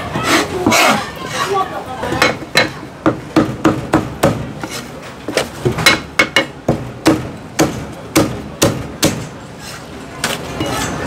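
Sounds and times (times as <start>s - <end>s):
cleaver chopping on wooden block: 5.8s - 9.2s.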